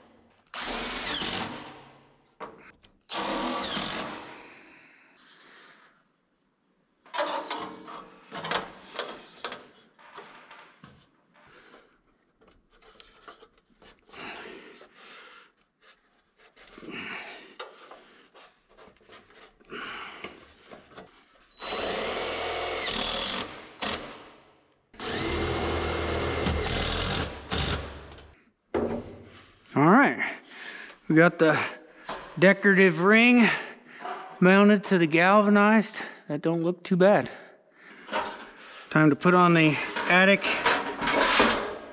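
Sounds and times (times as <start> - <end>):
impact driver running screws: 0.5 - 1.7, 3.1 - 4.2, 21.6 - 24.2, 25.0 - 28.2
wood and metal parts clattering: 38.0 - 38.8, 39.7 - 41.9.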